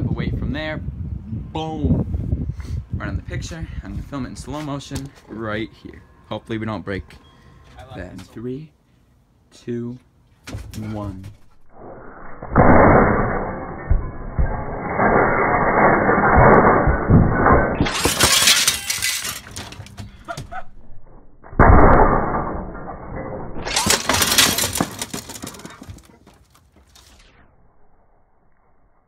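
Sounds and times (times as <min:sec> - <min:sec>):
glass shattering and tinkling: 0:12.9 - 0:20.0, 0:23.2 - 0:26.0.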